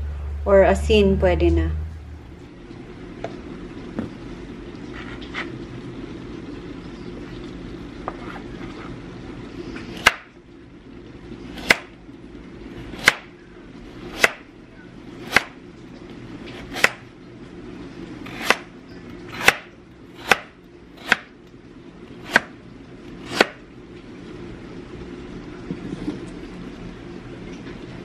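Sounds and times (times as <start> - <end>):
knife chopping carrot on board: 11.6 - 11.9, 13.0 - 13.3, 14.2 - 14.4, 15.2 - 15.6, 16.6 - 17.0, 19.4 - 21.3, 22.2 - 22.6, 23.3 - 23.6.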